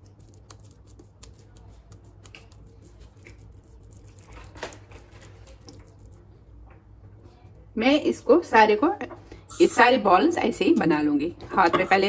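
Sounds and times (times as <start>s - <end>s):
hands squishing minced meat: 0.0s - 6.6s.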